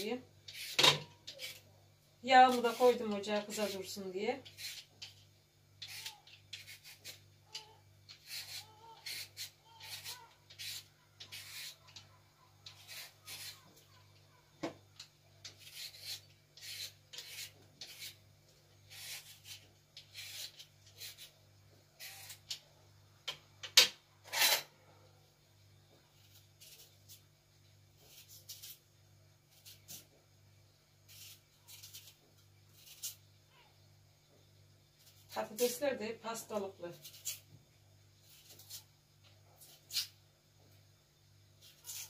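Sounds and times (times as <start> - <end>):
knife scraping potato skin: 0.0 - 1.7, 2.3 - 5.2, 5.8 - 14.1, 15.4 - 22.7, 24.2 - 24.7, 26.1 - 27.3, 28.0 - 30.2, 31.0 - 33.3, 34.9 - 35.9, 36.5 - 37.6, 38.2 - 40.2, 41.6 - 42.0.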